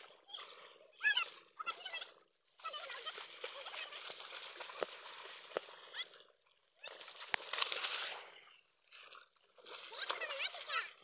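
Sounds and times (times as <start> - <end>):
water splashing and sloshing: 0.0 - 11.0
sharp water slaps: 3.0 - 6.0, 7.0 - 8.3.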